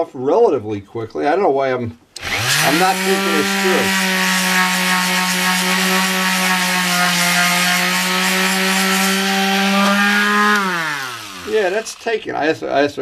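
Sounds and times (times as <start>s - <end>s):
grinder motor whine: 2.2s - 12.2s.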